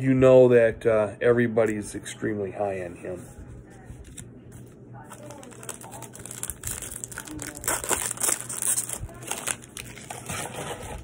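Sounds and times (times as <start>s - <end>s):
card pack wrapper crinkling: 5.1s - 10.8s.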